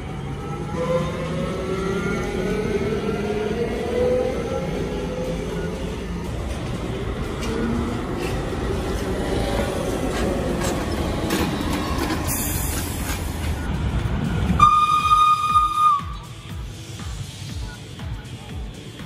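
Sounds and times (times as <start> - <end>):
vehicles passing in street: 0.0 - 19.0
train horn note: 14.6 - 16.3.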